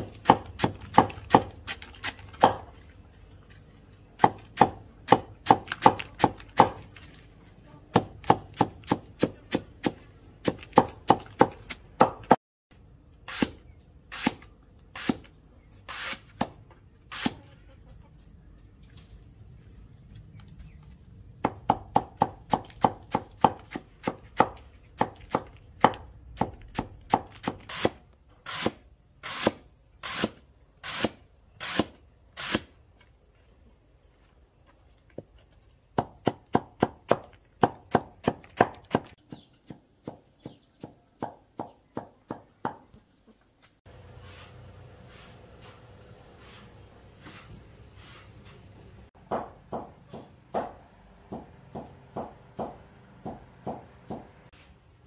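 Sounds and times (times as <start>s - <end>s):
blade chopping on wooden board: 0.0s - 2.7s, 4.2s - 6.8s, 7.9s - 12.4s, 21.4s - 28.0s, 49.2s - 54.3s.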